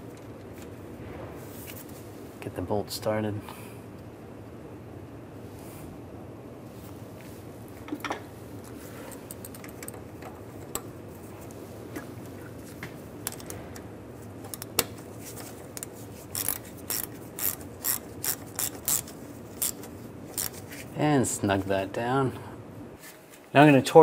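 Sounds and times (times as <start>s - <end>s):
hand ratchet clicking: 15.7s - 20.6s.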